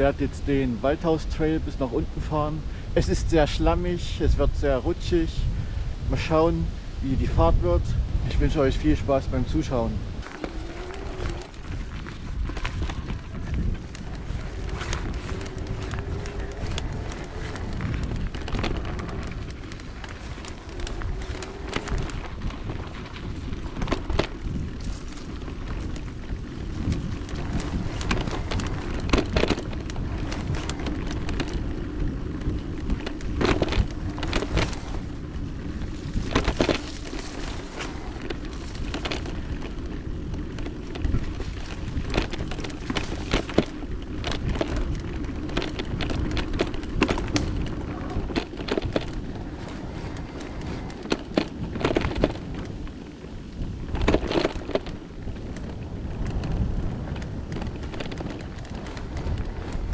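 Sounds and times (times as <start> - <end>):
bike knocking and rattling: 0.0 - 5.3, 7.1 - 59.9
rumble of tyres and wind: 0.0 - 59.9.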